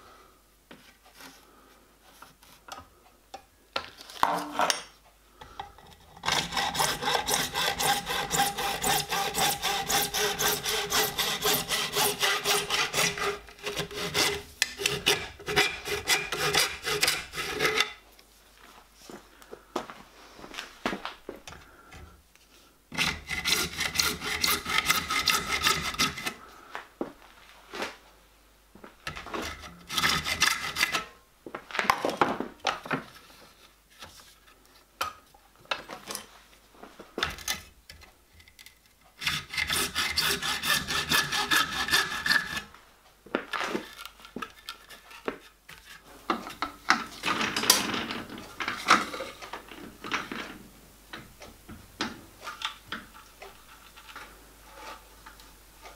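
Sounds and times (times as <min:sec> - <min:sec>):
hacksaw cutting plastic pipe: 0:05.9 - 0:18.0, 0:22.9 - 0:26.4, 0:29.1 - 0:31.1, 0:39.2 - 0:42.7.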